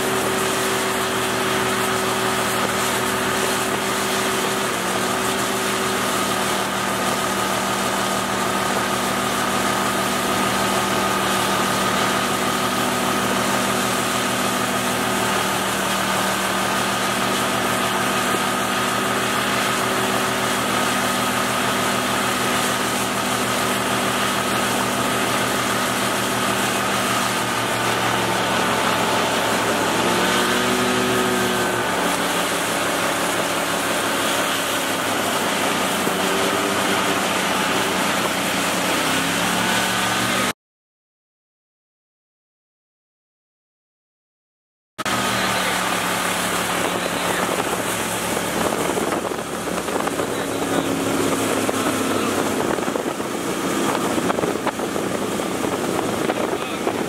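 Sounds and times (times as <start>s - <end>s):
rush of wind and water: 0.0s - 40.5s, 45.0s - 57.0s
outboard boat motor running: 0.0s - 40.6s, 45.0s - 57.0s.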